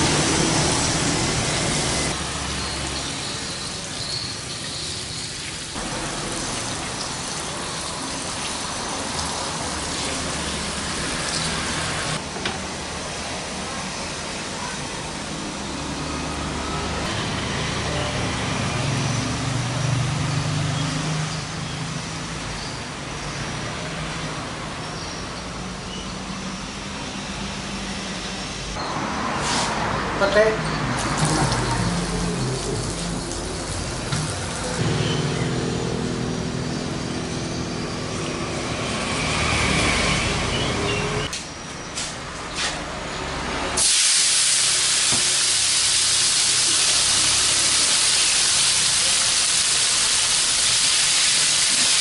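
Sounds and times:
food sizzling in hot oil: 0:00.0 - 0:12.2, 0:31.0 - 0:35.1, 0:43.8 - 0:52.0.

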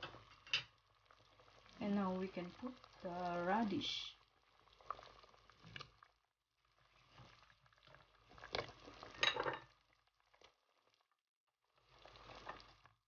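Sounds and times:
broth bubbling in a metal pot: 0:00.0 - 0:13.0
splashes and clatter: 0:04.7 - 0:11.1.

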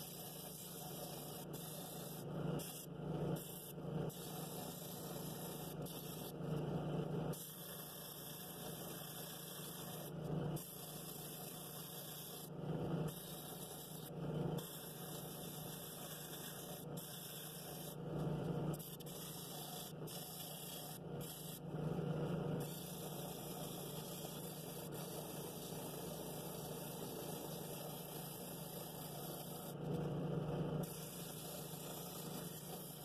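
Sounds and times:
drill press motor hum: 0:00.0 - 0:33.0.

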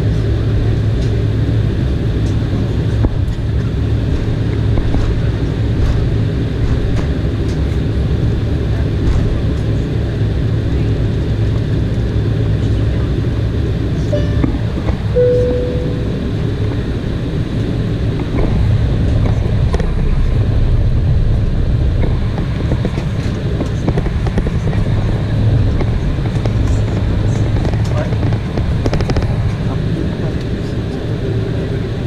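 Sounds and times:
jet engines droning: 0:00.0 - 0:32.0
brief tone: 0:14.1 - 0:16.5.

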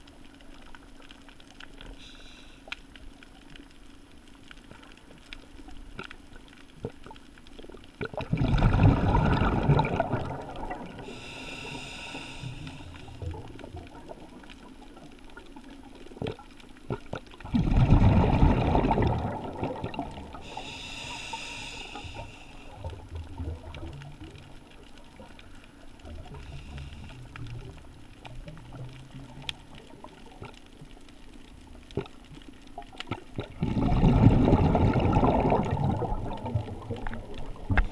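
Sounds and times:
air hissing through regulator: 0:02.0 - 0:02.6, 0:11.1 - 0:13.2, 0:20.4 - 0:22.8
exhaled bubbles gushing underwater: 0:07.8 - 0:12.0, 0:12.7 - 0:21.0, 0:22.7 - 0:37.9.

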